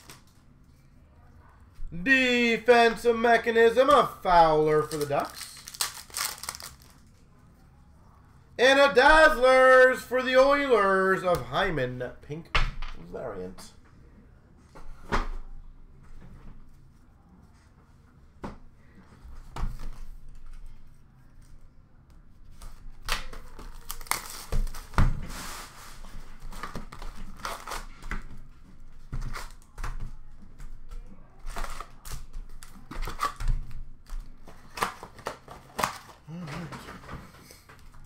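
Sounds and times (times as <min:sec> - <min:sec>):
plastic wrapping crinkling: 0:04.7 - 0:07.2, 0:23.3 - 0:24.9.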